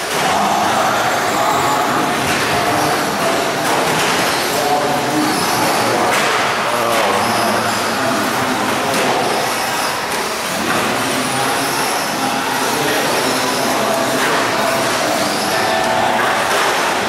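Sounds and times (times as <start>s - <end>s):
electric motors whining: 6.7s - 17.0s.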